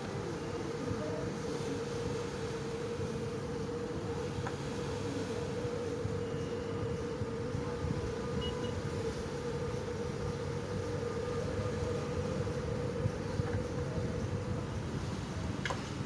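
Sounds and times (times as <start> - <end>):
constant engine hum: 0.0 - 16.0
ship engines rumbling: 0.0 - 16.0.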